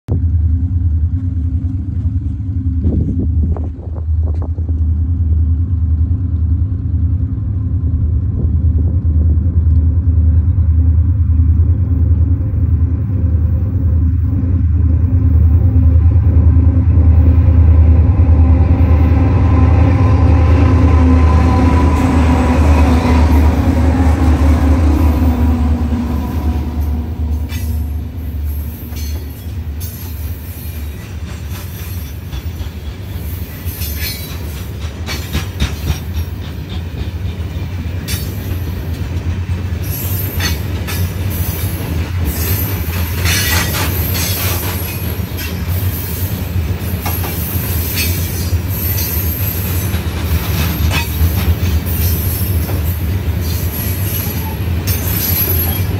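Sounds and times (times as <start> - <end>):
diesel locomotive engine drone: 0.0 - 55.9
train wheel clatter: 21.2 - 55.9
high wheel squeals: 42.3 - 55.9.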